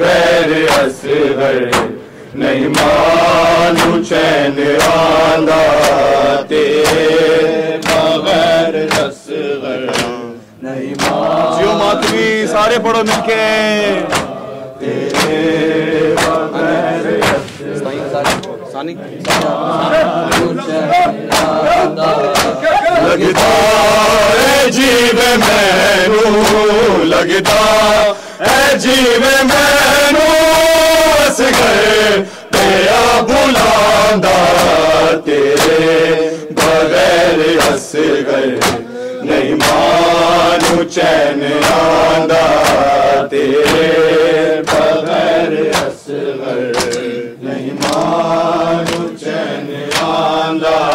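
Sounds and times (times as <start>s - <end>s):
men chanting a lament: 0.0s - 50.9s
hands striking chest: 1.7s - 2.0s, 7.8s - 8.1s, 9.8s - 10.2s, 10.9s - 11.3s, 14.1s - 14.3s, 15.0s - 15.4s, 16.2s - 16.5s, 17.2s - 17.6s, 18.2s - 18.5s, 19.2s - 19.6s, 20.3s - 20.5s, 21.3s - 21.6s, 22.4s - 22.6s, 38.6s - 38.9s, 42.6s - 42.9s, 45.7s - 46.0s, 46.7s - 47.1s, 47.8s - 48.1s, 48.8s - 49.1s, 49.9s - 50.2s.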